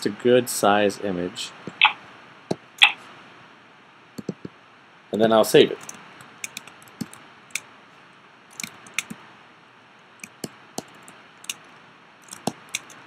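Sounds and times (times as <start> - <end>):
keyboard and mouse clicks: 4.2 - 4.5, 5.8 - 7.6, 8.5 - 9.2, 10.2 - 11.6, 12.2 - 13.0.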